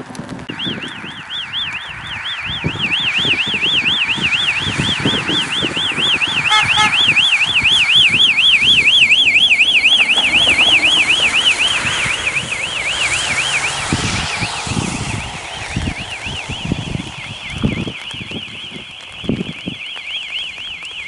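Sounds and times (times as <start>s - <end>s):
tyres on wet road: 0.0s - 21.0s
warbling siren: 0.4s - 21.0s
car engine: 4.3s - 18.2s.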